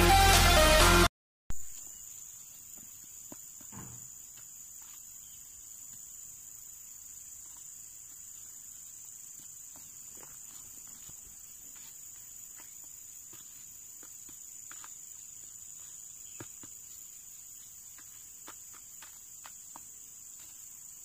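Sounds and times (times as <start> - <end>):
crickets chirring: 1.6 - 21.0.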